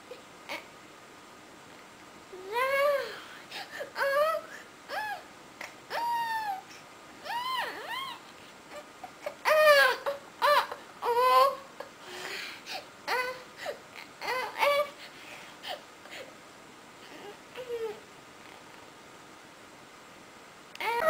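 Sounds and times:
girl crying and wailing: 2.4s - 5.3s, 5.9s - 11.9s, 20.8s - 21.0s.

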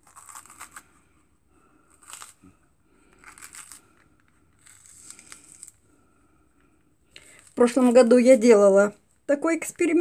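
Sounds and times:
pepper flesh tearing: 0.0s - 1.0s.

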